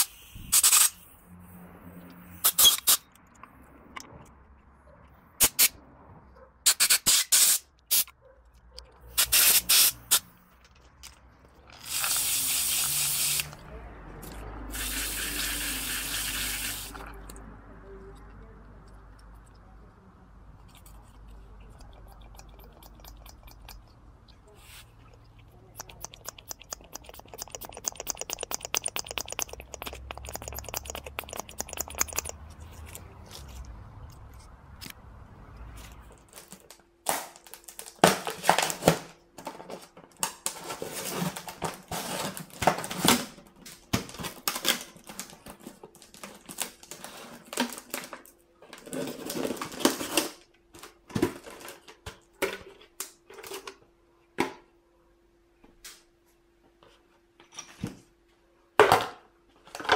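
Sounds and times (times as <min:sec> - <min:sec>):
fast even clicks: 0:25.6 - 0:33.0.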